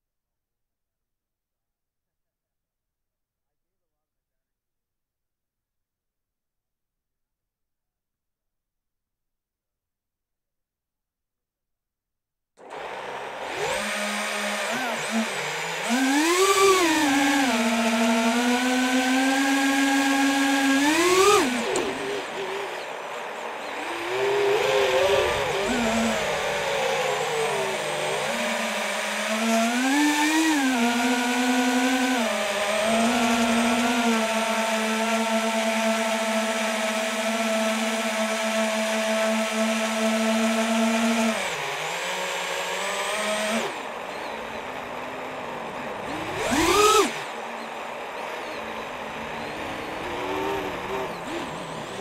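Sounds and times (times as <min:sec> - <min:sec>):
quadcopter motors whining: 0:12.6 - 0:52.0.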